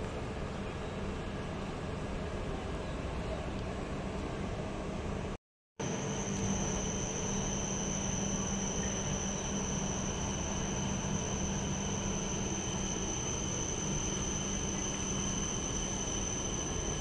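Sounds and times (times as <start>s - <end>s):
city ambience roar: 0.0s - 17.0s
high-pitched whine: 5.8s - 17.0s
low hum: 5.8s - 17.0s.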